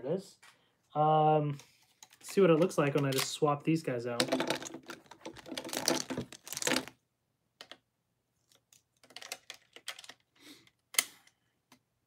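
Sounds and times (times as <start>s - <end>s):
plastic toy parts clicking: 9.0s - 11.4s.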